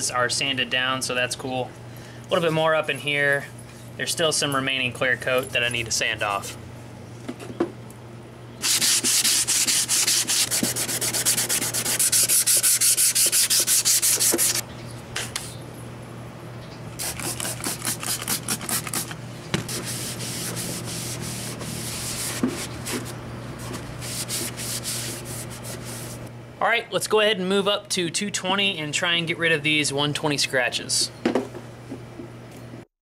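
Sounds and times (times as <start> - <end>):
cloth wiping: 8.6 - 14.6, 19.7 - 26.3
sandpaper rubbing plastic: 8.6 - 14.6, 17.0 - 26.3.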